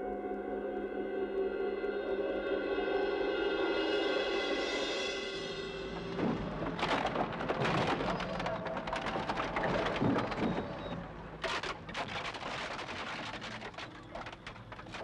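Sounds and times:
compactor crushing wooden crate: 6.1s - 15.0s.

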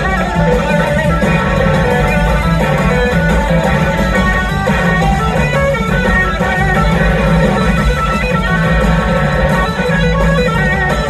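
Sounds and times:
bass guitar: 0.0s - 11.0s
drums: 0.0s - 11.0s
electric guitar lead solo: 0.0s - 11.0s.

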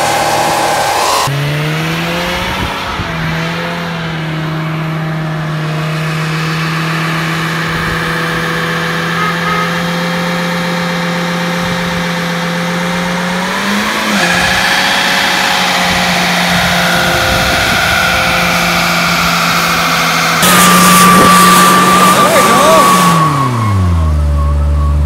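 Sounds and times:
car engine revving high: 0.0s - 25.0s.

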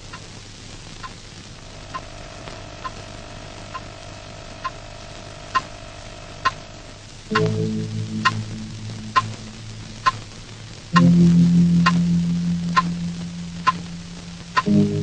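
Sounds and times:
tape hiss: 0.0s - 15.0s
soft repeating tick: 0.1s - 0.3s, 1.0s - 1.2s, 1.9s - 3.0s, 3.6s - 4.0s, 5.5s - 5.7s, 7.3s - 15.0s
held electronic tone: 1.7s - 10.3s, 10.9s - 15.0s
deep sustained chords: 7.3s - 15.0s.

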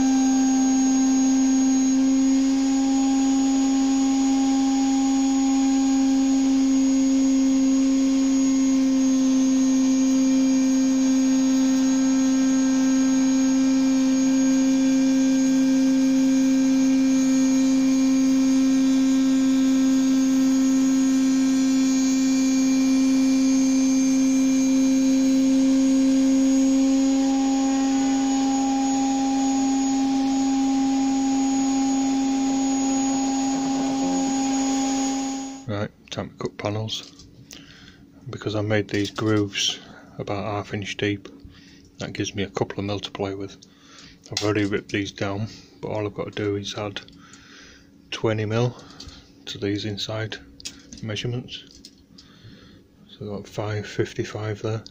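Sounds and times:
router cutting wood: 0.0s - 35.7s
high tone: 25.0s - 35.7s.

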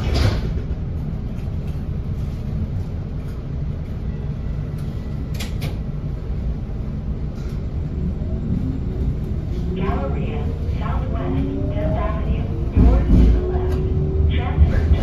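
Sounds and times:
light rail car rumble: 0.0s - 15.0s.

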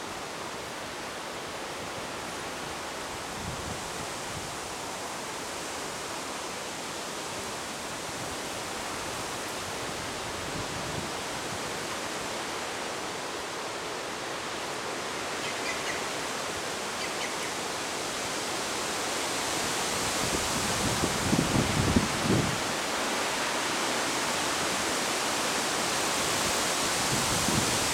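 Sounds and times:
wind rushing through reeds: 0.0s - 27.9s
faint bird chirps: 15.4s - 16.1s, 17.0s - 17.6s.

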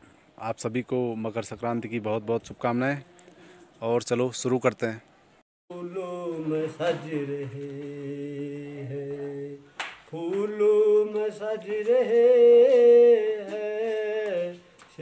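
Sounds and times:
man singing unaccompanied: 5.7s - 15.0s.

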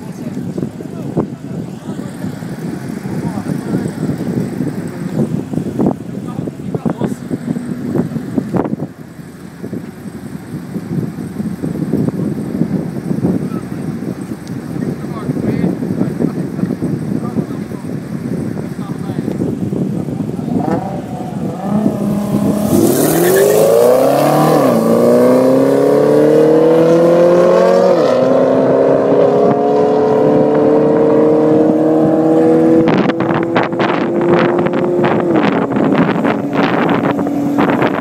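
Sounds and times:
wind buffeting microphone: 0.0s - 38.0s
car engine revving and accelerating: 20.4s - 38.0s.

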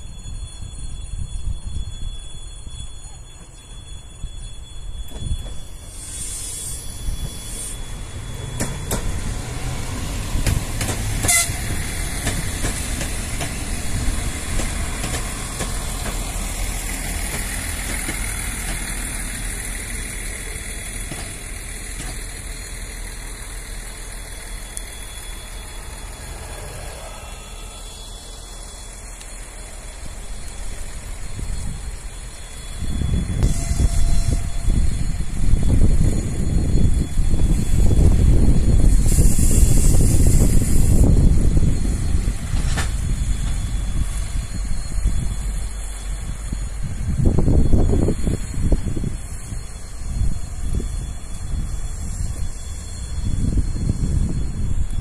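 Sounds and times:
railbus engines running: 0.0s - 55.0s
wheels clattering over rails: 8.3s - 27.6s.

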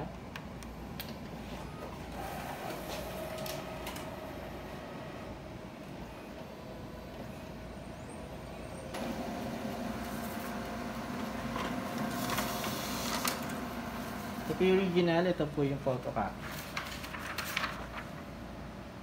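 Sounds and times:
copier humming: 0.0s - 19.0s
print engine running: 0.8s - 15.2s
paper feed clicks: 2.2s - 4.2s, 8.9s - 15.0s, 16.0s - 18.3s.

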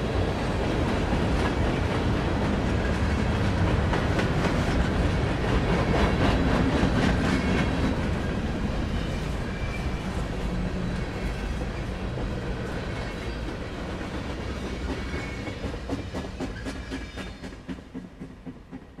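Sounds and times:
train wheels rumbling on rails: 0.0s - 19.0s
clickety-clack over rail joints: 0.4s - 19.0s.

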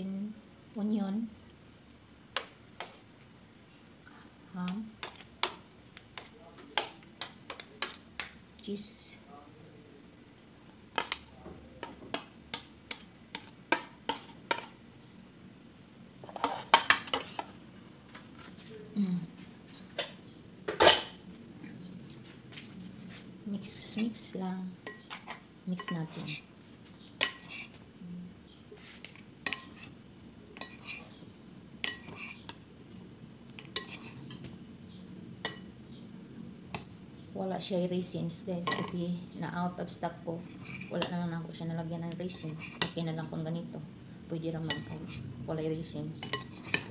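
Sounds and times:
wet rustle of stirred salad: 2.4s - 3.4s, 4.9s - 8.4s, 16.2s - 19.8s, 22.0s - 27.8s, 28.7s - 30.0s, 30.6s - 32.6s, 33.5s - 34.6s, 42.3s - 43.0s, 46.2s - 46.9s.

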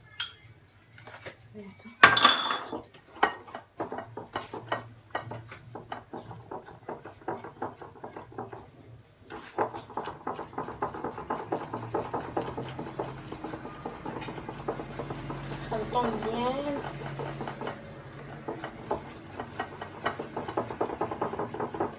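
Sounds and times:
whisk scraping ceramic bowl: 3.1s - 8.7s, 9.3s - 21.9s.

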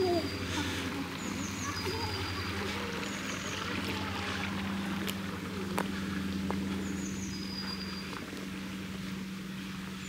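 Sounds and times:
bird calling: 0.0s - 3.6s.

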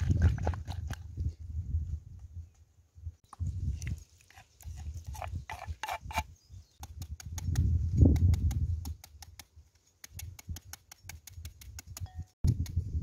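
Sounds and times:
knife clicking through mango: 6.8s - 12.0s.

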